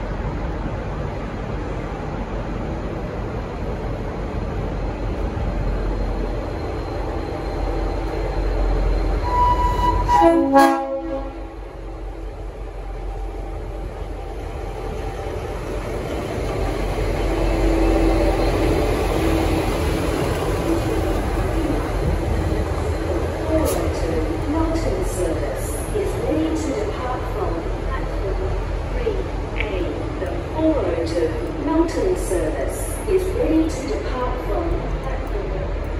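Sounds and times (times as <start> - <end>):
diesel locomotive engine rumbling: 0.0 - 35.9
chime horn blast: 9.2 - 11.4.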